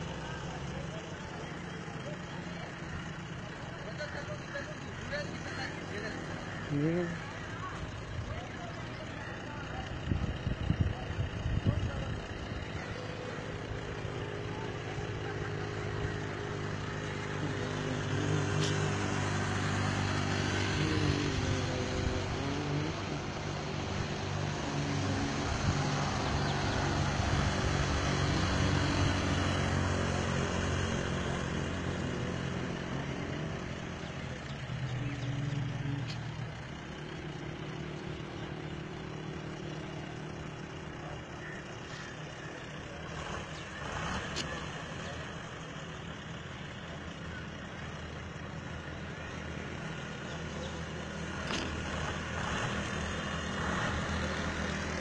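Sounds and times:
road noise: 0.0 - 55.0
vehicle engine running: 0.0 - 55.0.

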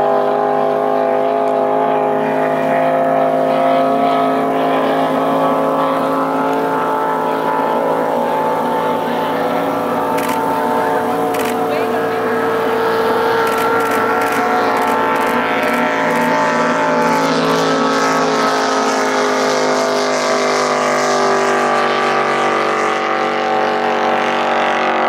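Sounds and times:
racing boat engine drone: 0.0 - 25.0.

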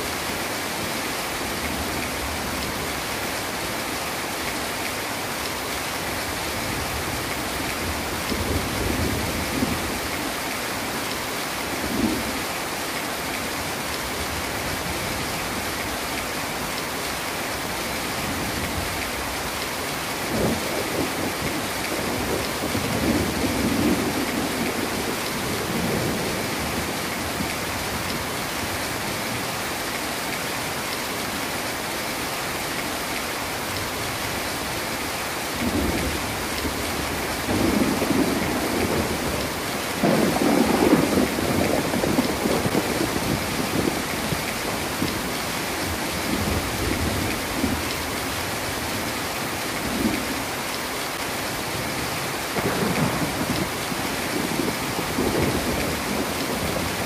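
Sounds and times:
heavy rain falling: 0.0 - 57.0
thunder rumbling: 35.6 - 45.3, 52.5 - 57.0.

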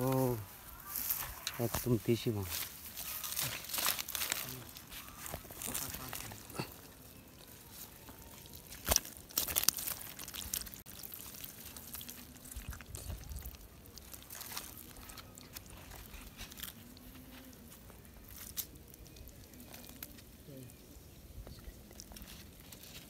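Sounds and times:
hands squelching in wet mud: 2.5 - 20.1.

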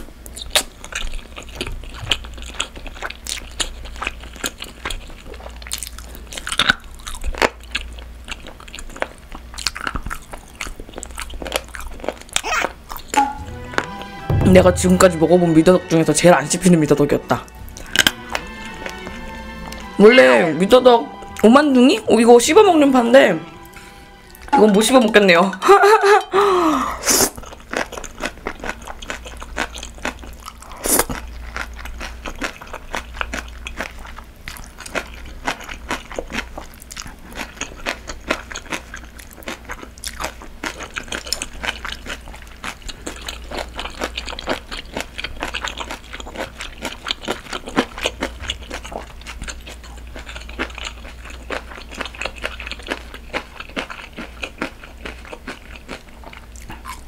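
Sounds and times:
chewing with crunchy bites: 0.0 - 13.2, 27.3 - 57.0.

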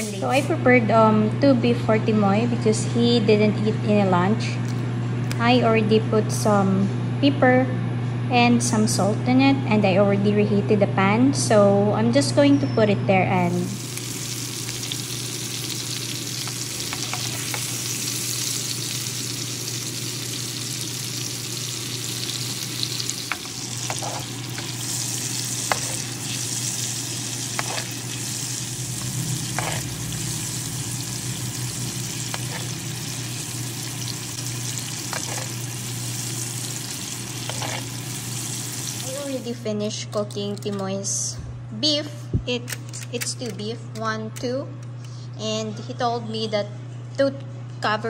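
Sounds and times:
steaks sizzling in a frying pan: 13.6 - 39.4.

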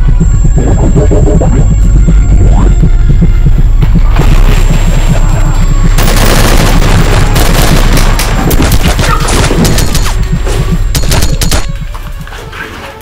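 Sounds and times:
low throbbing bass: 0.0 - 12.3
rapid automatic gunfire: 5.9 - 10.2, 10.9 - 11.8.

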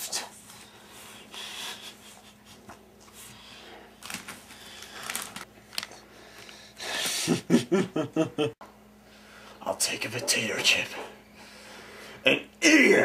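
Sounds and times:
faint steady hum: 0.0 - 13.0
chip bag crinkling: 4.0 - 6.0.

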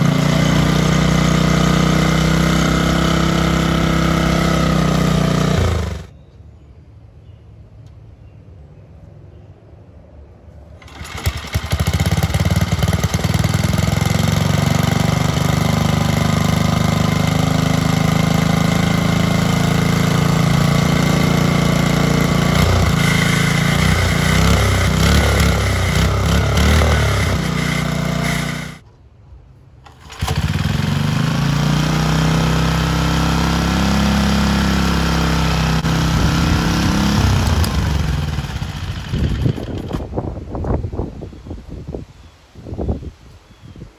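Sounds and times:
single-cylinder engine running: 0.0 - 6.1, 10.8 - 28.8, 29.8 - 40.2.

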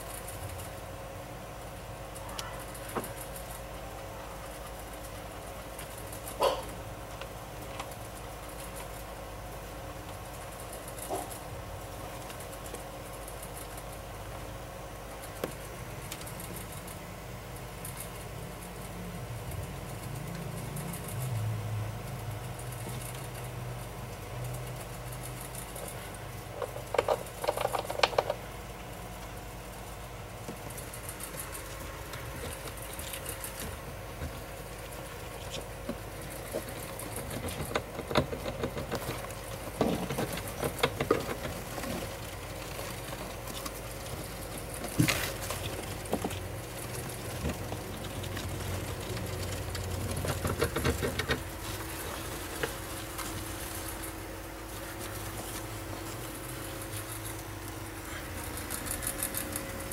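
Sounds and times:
steady low hum: 0.0 - 59.9
rustling and scratching in bedding: 30.7 - 59.9.

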